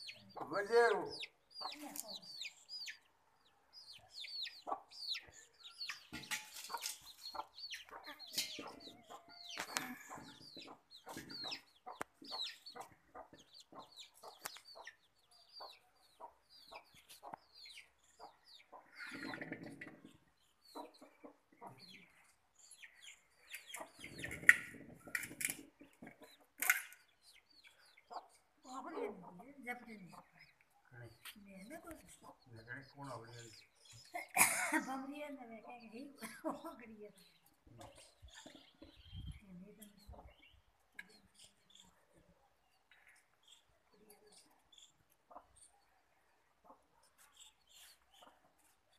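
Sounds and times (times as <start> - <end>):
chicken clucking: 0.0 - 3.1, 3.9 - 26.7, 27.3 - 30.4, 43.4 - 45.8
chicks peeping: 0.0 - 30.5, 46.5 - 48.9.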